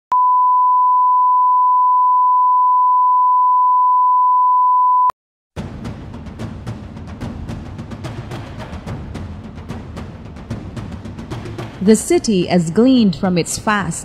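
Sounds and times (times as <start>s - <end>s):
music with drum hits: 5.6s - 11.9s.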